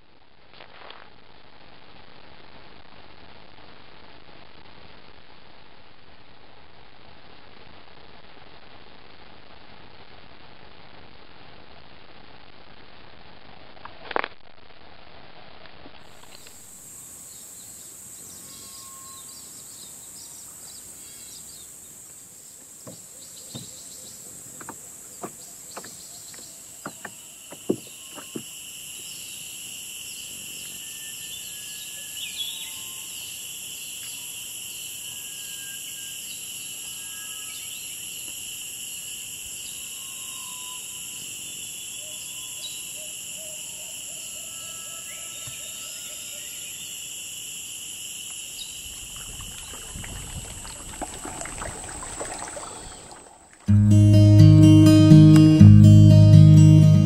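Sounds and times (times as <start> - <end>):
insects buzzing: 16.0 - 53.6
bird chirps: 17.3 - 21.7, 30.1 - 36.5.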